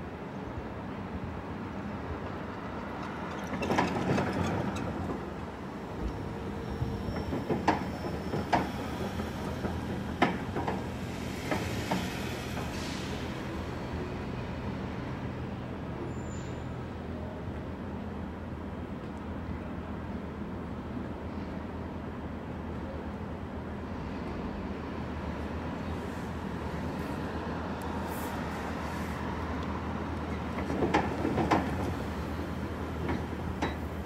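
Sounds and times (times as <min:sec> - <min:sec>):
city traffic hum: 0:00.0 - 0:34.0
passing vehicles: 0:08.5 - 0:19.5, 0:23.7 - 0:34.0.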